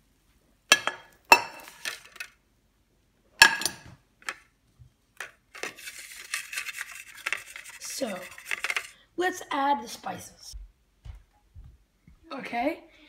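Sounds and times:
kitchenware clattering on countertop: 0:00.7 - 0:02.3, 0:03.4 - 0:04.4
scraping and rustling: 0:05.2 - 0:08.9.

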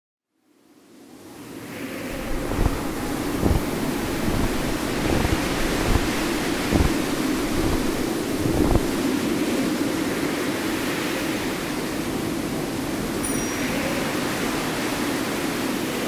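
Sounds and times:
rushing wind-like noise: 0:00.8 - 0:16.0
soft low thumps: 0:02.2 - 0:09.0.

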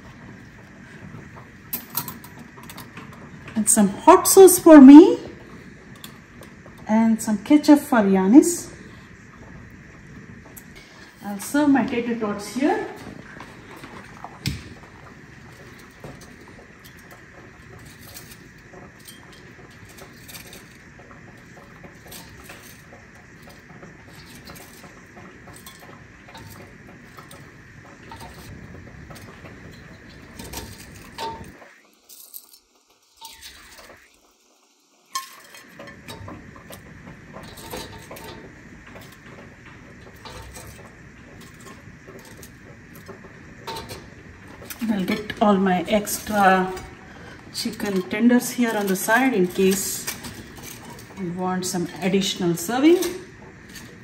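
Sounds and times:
metal tongs clinking on metal: 0:15.5 - 0:20.8, 0:21.4 - 0:27.5, 0:29.2 - 0:32.6, 0:33.2 - 0:34.0, 0:35.1 - 0:39.2, 0:40.0 - 0:47.0, 0:47.6 - 0:54.0.

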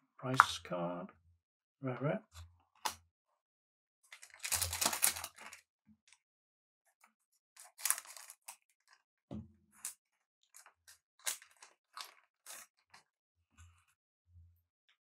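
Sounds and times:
cards and wrappers crinkling: 0:04.1 - 0:05.6, 0:07.6 - 0:09.0, 0:10.5 - 0:13.1.

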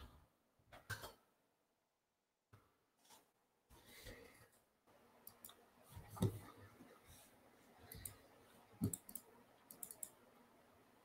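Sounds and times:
computer mouse clicks: 0:05.2 - 0:06.4, 0:07.9 - 0:08.2, 0:08.8 - 0:10.2.

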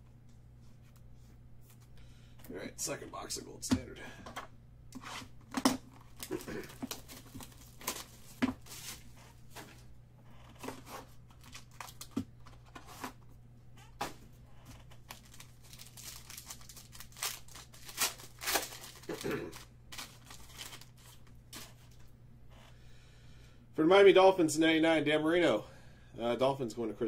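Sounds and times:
foil pack tearing and crinkling: 0:05.8 - 0:09.2, 0:10.6 - 0:13.2, 0:14.9 - 0:21.7.

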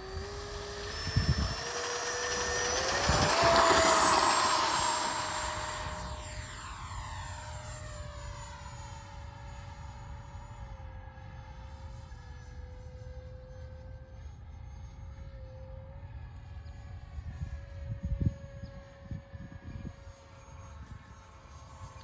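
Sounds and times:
model jet fan whining: 0:00.0 - 0:15.9.

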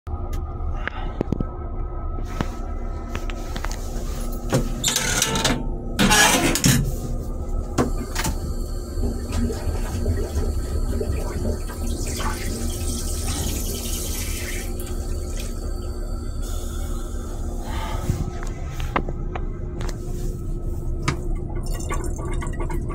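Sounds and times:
steady low rumble: 0:00.1 - 0:06.0, 0:06.6 - 0:22.9
toilet flushing rush: 0:07.8 - 0:18.5, 0:21.1 - 0:22.9.

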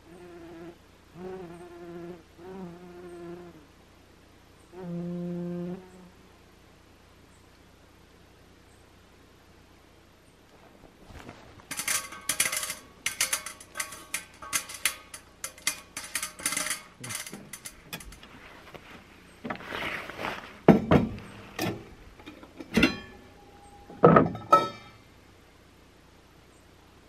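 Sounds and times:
rustle: 0:00.0 - 0:27.0
metallic scrapes and clicks: 0:11.2 - 0:18.8
metal pot and lid clanking: 0:11.7 - 0:18.2, 0:20.7 - 0:25.0.

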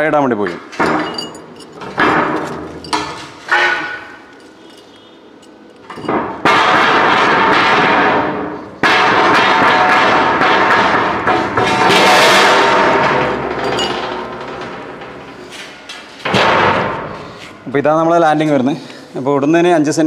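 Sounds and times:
metal on metal clatter: 0:00.7 - 0:17.4
hammer striking steel plate: 0:06.0 - 0:15.6.

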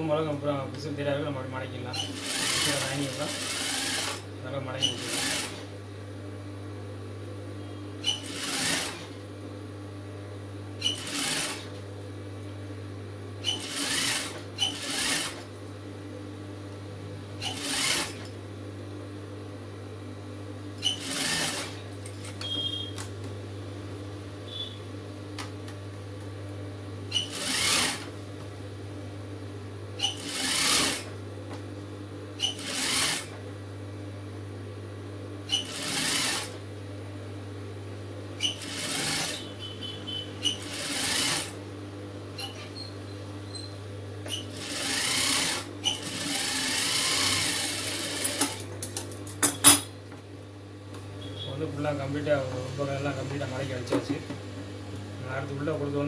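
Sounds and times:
industrial sewing machine stitching: 0:01.9 - 0:05.7, 0:08.0 - 0:09.2, 0:10.8 - 0:11.8, 0:13.4 - 0:15.5, 0:17.4 - 0:18.3, 0:20.8 - 0:21.8, 0:27.1 - 0:28.2, 0:30.0 - 0:31.2, 0:32.4 - 0:33.4, 0:35.4 - 0:36.6, 0:38.4 - 0:39.6, 0:40.4 - 0:41.6, 0:44.3 - 0:48.7
steady low hum: 0:47.8 - 0:56.0.

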